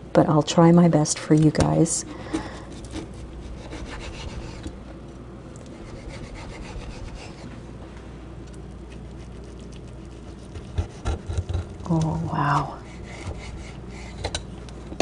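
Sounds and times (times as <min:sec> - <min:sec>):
knife sawing through pastry crust: 0:02.1 - 0:04.7, 0:05.7 - 0:07.6, 0:08.9 - 0:11.8, 0:12.4 - 0:14.4.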